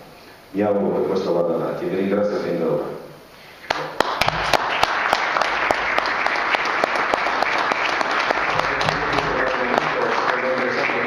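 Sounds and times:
audience applauding: 0:03.7 - 0:11.0.

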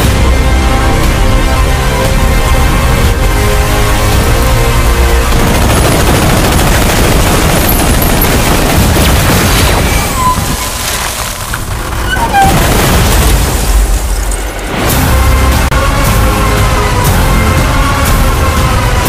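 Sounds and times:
film music: 0:00.0 - 0:10.4, 0:11.3 - 0:19.0
rapid gunfire: 0:05.2 - 0:10.1.

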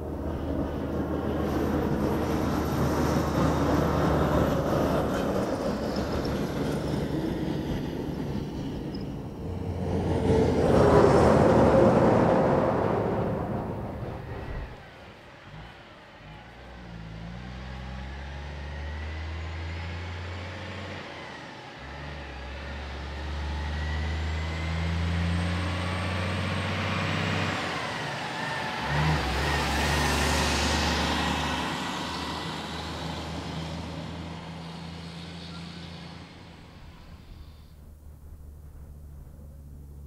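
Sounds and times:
heavy diesel truck engine: 0:00.0 - 0:40.0.

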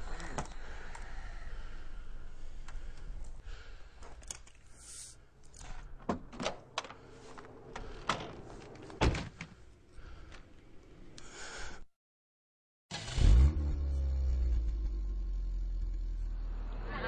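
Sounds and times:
heavy door thunk: 0:08.9 - 0:09.5.

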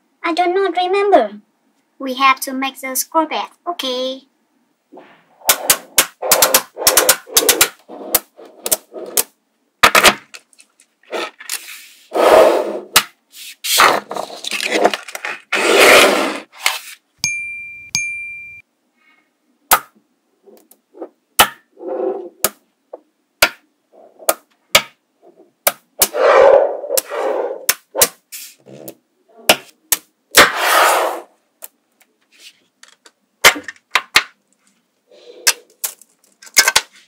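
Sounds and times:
brief ringing tone: 0:17.2 - 0:18.6
magnet balls clicking together: 0:35.4 - 0:36.8.

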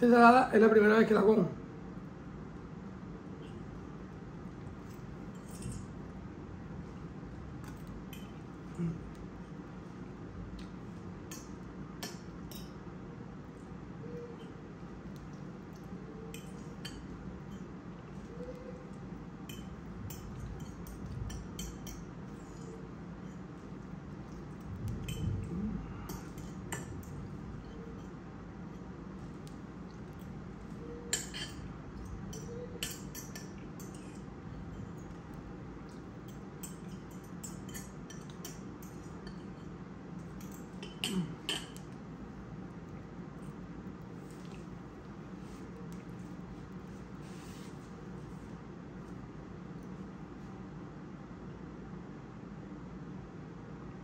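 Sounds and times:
fork clinking on ceramic bowl: 0:11.3 - 0:12.8, 0:15.2 - 0:18.8, 0:19.4 - 0:23.6, 0:24.2 - 0:25.4, 0:26.0 - 0:35.3, 0:35.9 - 0:41.9.

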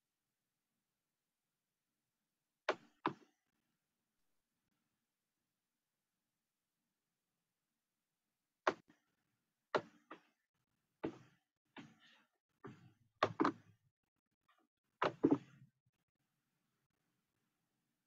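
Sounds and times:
irregular knocks and thumps: 0:02.7 - 0:03.4, 0:09.7 - 0:10.4, 0:11.0 - 0:13.8, 0:15.0 - 0:15.6.

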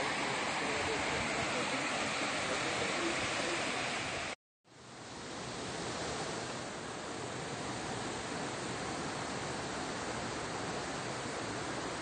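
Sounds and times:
waterfall rushing: 0:00.0 - 0:04.4.

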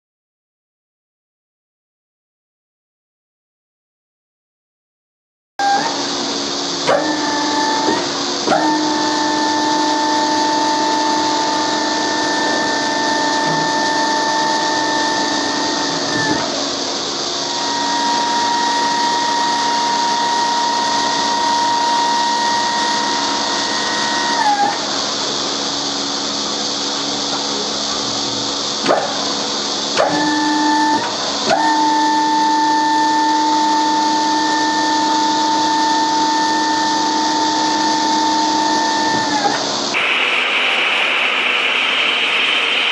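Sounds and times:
hydraulic pump whining: 0:05.6 - 0:42.9.

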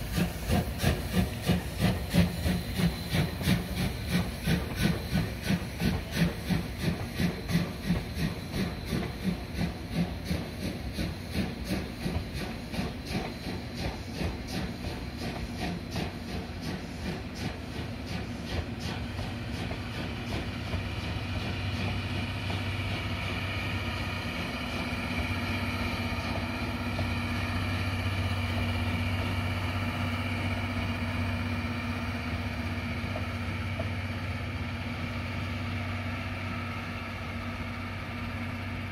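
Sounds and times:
train engine drone and whine: 0:00.0 - 0:38.9
train rail clatter: 0:00.0 - 0:38.9.

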